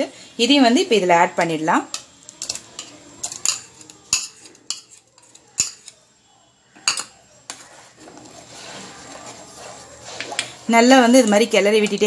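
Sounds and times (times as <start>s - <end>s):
spoon clinking on metal pan: 1.9s - 6.0s.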